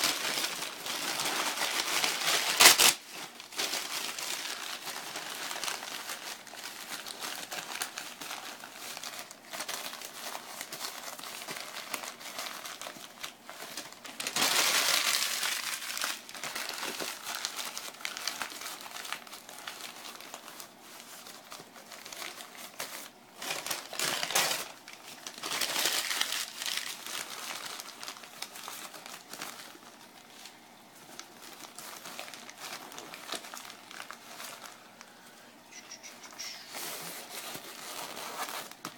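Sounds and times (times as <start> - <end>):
newspaper crinkling and rustling: 0.0 - 38.9.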